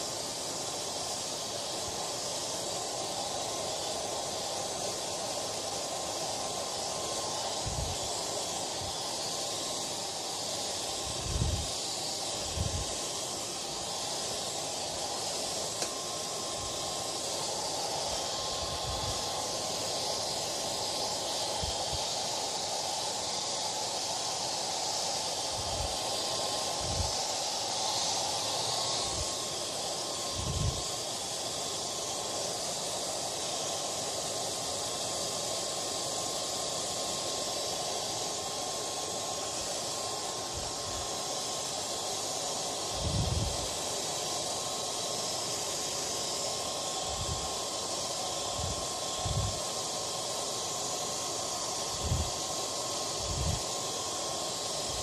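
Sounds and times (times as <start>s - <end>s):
hair dryer running: 0.0s - 55.0s.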